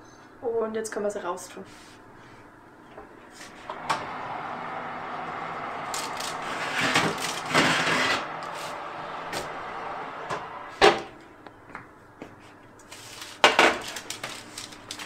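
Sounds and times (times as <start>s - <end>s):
oven fan whirring: 2.9s - 15.0s
baking tray scraping on oven rails: 3.3s - 11.2s.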